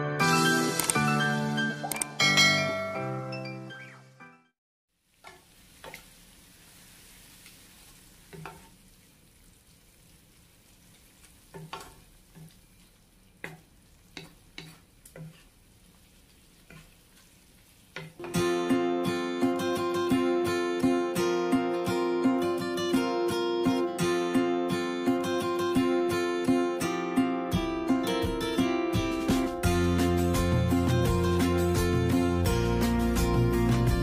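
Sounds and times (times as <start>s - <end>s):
music: 0.0s - 4.6s, 18.2s - 34.0s
food sizzling in a pan: 5.0s - 20.4s
spatula scraping a pan: 5.3s - 8.8s, 10.9s - 18.2s.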